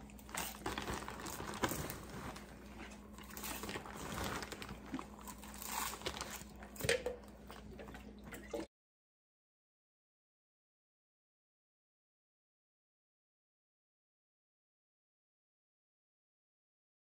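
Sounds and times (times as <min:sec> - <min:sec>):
plastic bag crinkling: 0:00.0 - 0:06.8
popcorn crunching and chewing: 0:00.0 - 0:08.5.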